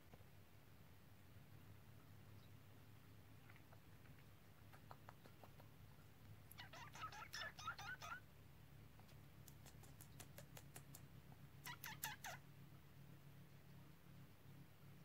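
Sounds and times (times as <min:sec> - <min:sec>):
cat chirping and chattering: 0:03.4 - 0:05.8, 0:06.5 - 0:08.2, 0:09.4 - 0:12.5.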